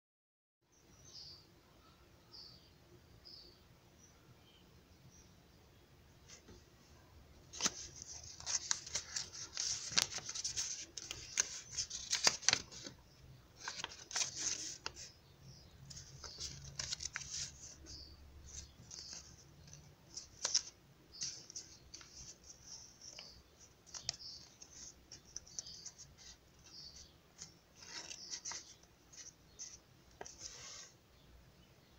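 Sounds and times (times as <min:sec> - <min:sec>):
paper rustling and crinkling: 0:07.5 - 0:13.0, 0:13.6 - 0:15.1, 0:15.9 - 0:31.0.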